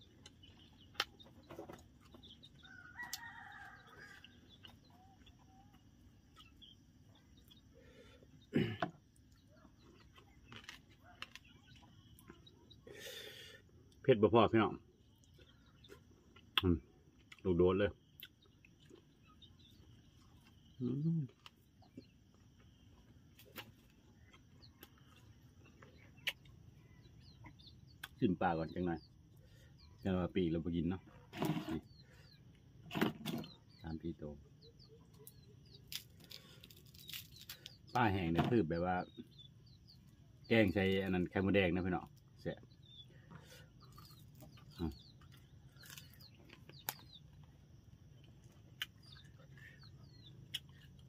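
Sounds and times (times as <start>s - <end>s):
bird chirps: 0.0s - 8.6s, 17.5s - 51.0s
faint insect drone: 1.9s - 31.1s
rooster crowing: 2.6s - 4.5s.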